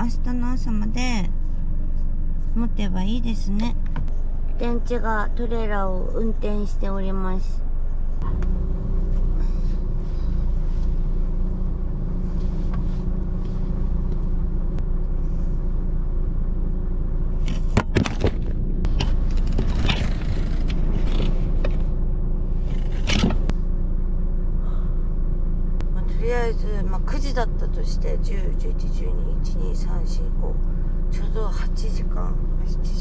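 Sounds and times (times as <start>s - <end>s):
low engine rumble: 0.0s - 33.0s
knocks and rustles: 17.4s - 22.0s, 22.6s - 23.5s.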